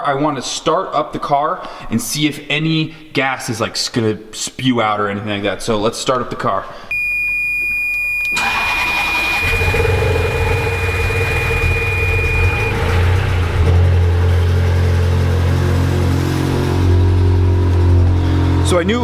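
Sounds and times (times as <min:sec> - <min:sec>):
high beep: 0:06.9 - 0:13.1
car engine cranking and idling: 0:08.2 - 0:19.0.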